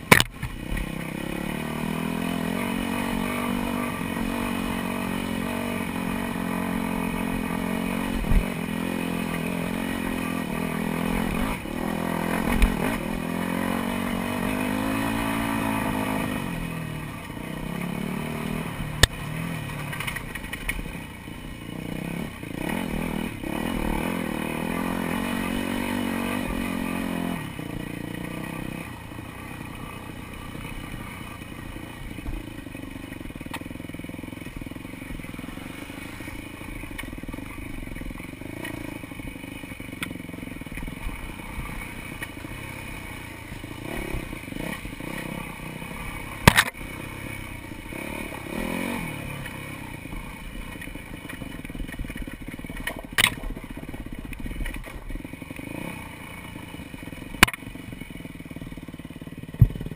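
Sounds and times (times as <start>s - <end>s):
dirt bike engine revving: 0.0s - 59.9s
bike knocks and clatter: 46.4s - 46.8s, 59.6s - 59.9s.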